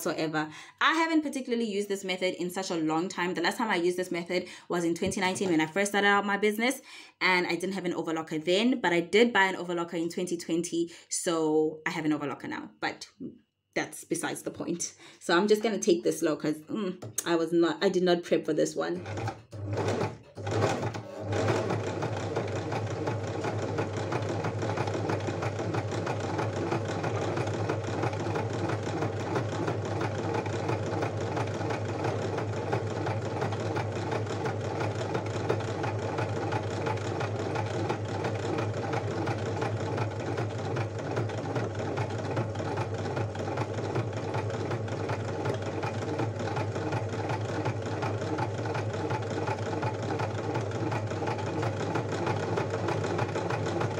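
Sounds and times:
electric sewing machine running: 18.9 - 53.9.

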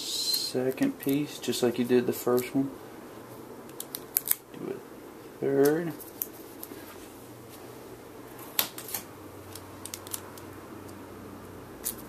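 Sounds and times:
faint steady hum: 0.0 - 12.0
adhesive tape crackles and clicks: 3.7 - 4.5, 8.6 - 11.0.

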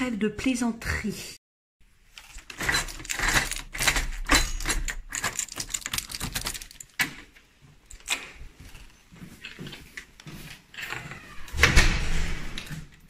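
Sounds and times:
key turning in lock: 2.2 - 7.3, 7.9 - 8.8
keys rattling on ring: 2.6 - 7.1.

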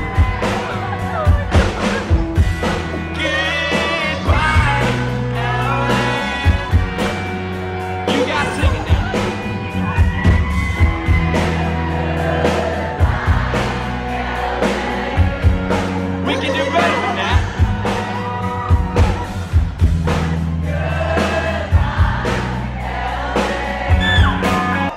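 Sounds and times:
bass and electric guitar: 0.0 - 24.9
drums keeping a steady beat: 0.0 - 24.9
person singing: 3.0 - 7.2.

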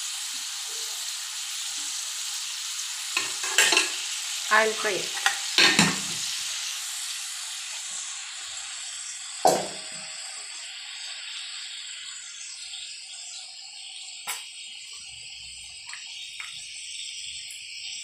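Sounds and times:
fish sizzling in hot oil: 0.0 - 18.0
knock: 9.5 - 9.8.

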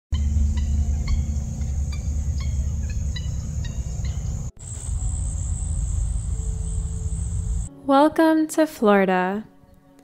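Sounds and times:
high-pitched insect chorus: 0.2 - 7.7
low rumble: 0.2 - 7.7.

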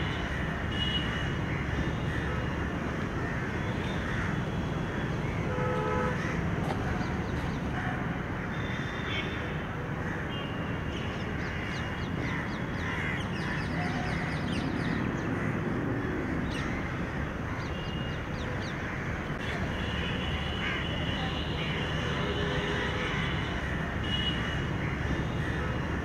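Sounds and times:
crows cawing: 3.2 - 4.4, 11.4 - 14.4.

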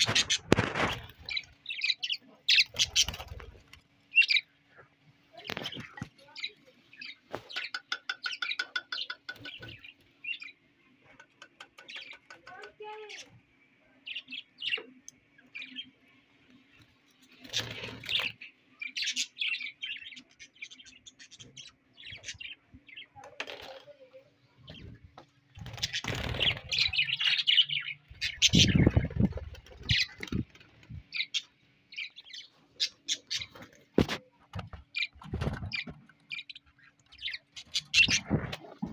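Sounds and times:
wings rustling and fluttering: 0.0 - 10.2, 16.4 - 19.2, 21.3 - 38.9
budgerigars chirping: 4.1 - 4.6, 25.7 - 30.5, 31.1 - 33.7, 34.9 - 38.4.

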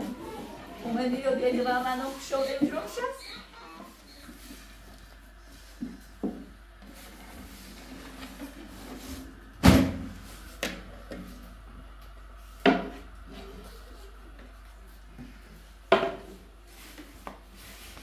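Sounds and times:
objects knocking and thumping: 12.6 - 13.1, 15.9 - 16.4.

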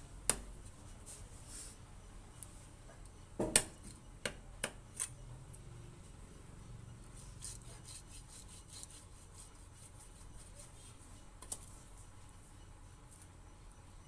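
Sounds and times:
knife scraping fish scales: 7.2 - 10.8.

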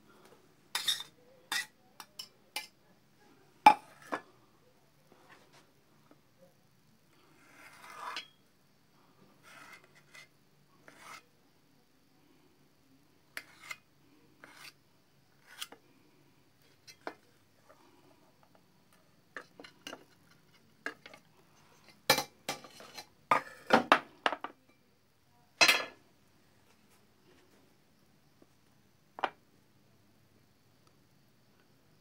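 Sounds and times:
knife tapping and scraping on plate: 0.8 - 2.7, 3.7 - 4.2, 13.4 - 13.8, 21.8 - 24.5.

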